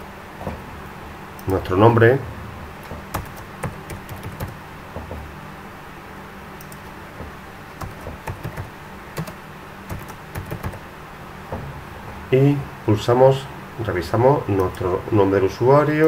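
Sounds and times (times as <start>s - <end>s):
low hum: 0.0s - 14.0s
keyboard typing: 2.8s - 5.2s, 6.6s - 7.0s, 7.7s - 10.8s.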